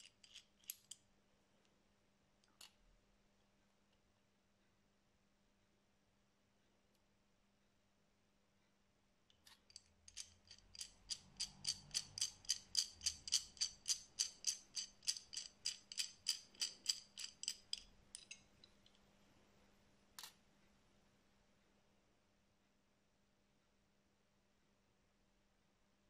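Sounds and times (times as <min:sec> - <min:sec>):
wrench worm screw clicking: 0:09.7 - 0:18.4.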